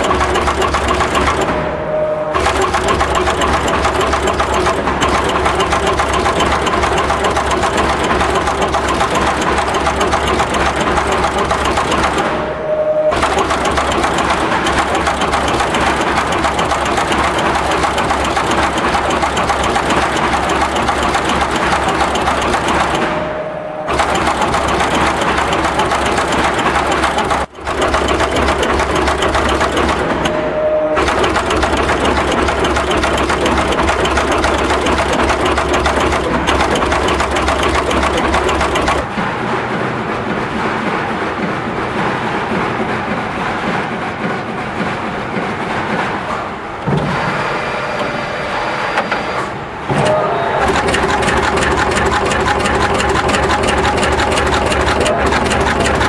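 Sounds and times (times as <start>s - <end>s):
short machine whine: 0.0s - 20.4s, 28.2s - 33.7s
machine rapid mechanical clatter: 0.0s - 56.0s.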